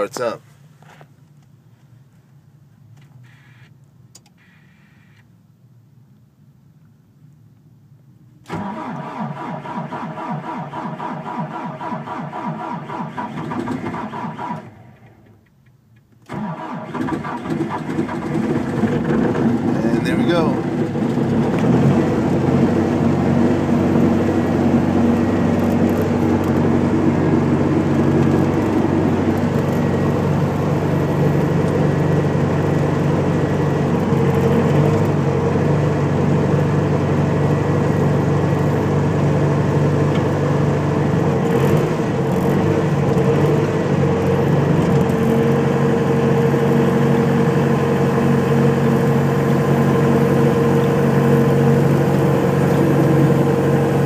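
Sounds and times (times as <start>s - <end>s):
diesel engine idling: 16.4s - 54.0s.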